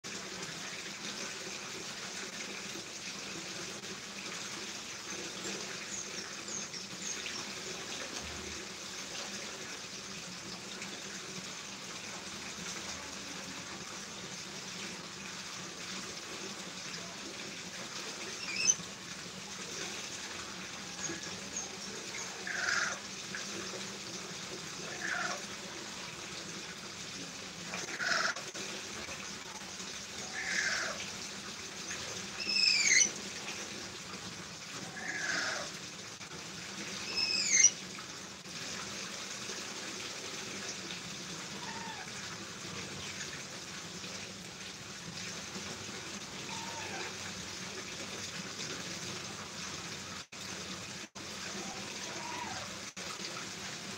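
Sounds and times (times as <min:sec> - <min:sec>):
parrot chirps and squawks: 0:18.3 - 0:18.8, 0:21.0 - 0:23.0, 0:24.9 - 0:25.4, 0:27.8 - 0:28.4, 0:30.2 - 0:31.0, 0:32.4 - 0:33.2, 0:34.8 - 0:35.7, 0:37.0 - 0:37.8, 0:41.6 - 0:42.1, 0:46.4 - 0:47.2, 0:51.6 - 0:52.7.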